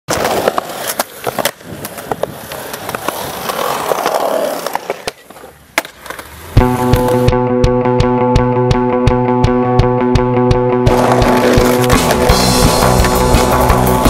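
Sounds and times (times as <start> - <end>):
skateboard wooden clacks: 0.1 - 7.2, 10.9 - 13.6
skateboard wheels rolling on concrete: 0.1 - 7.3, 10.9 - 14.0.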